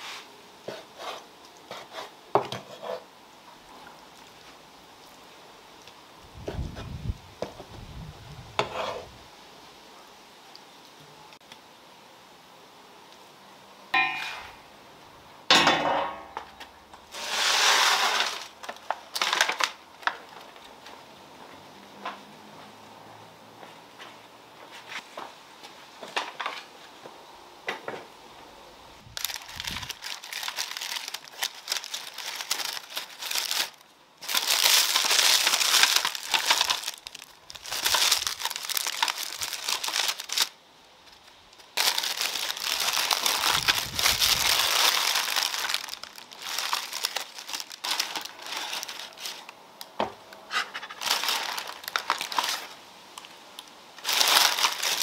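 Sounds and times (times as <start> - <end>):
parchment paper crinkling: 17.2 - 20.6, 29.2 - 49.6, 50.6 - 55.0.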